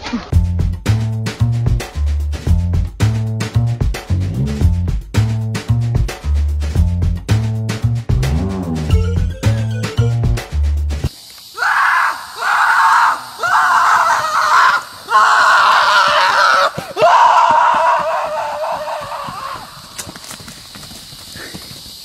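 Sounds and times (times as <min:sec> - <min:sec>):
music with heavy bass beat: 0:00.3 - 0:11.1
person screaming: 0:11.6 - 0:19.8.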